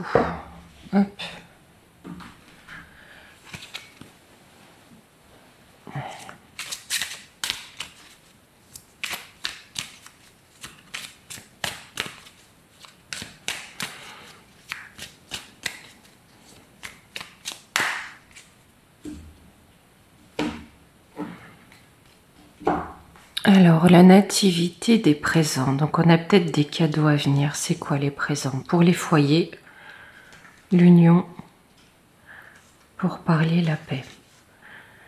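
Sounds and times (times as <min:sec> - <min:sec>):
cards being shuffled: 0:03.4 - 0:04.1, 0:06.6 - 0:18.6.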